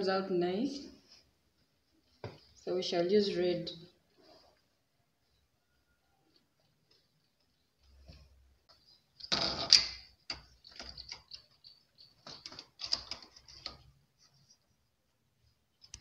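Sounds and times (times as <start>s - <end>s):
knitting machine clicking and rattling: 9.2s - 14.0s.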